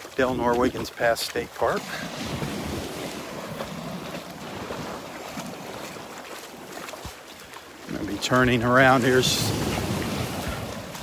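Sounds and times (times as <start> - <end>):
small waves breaking on sand: 0.0 - 11.0
wind on microphone: 9.0 - 11.0.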